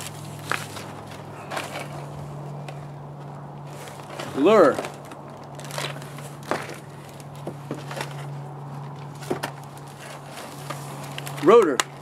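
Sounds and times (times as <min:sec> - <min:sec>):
plastic packaging crinkling: 0:04.8 - 0:07.4.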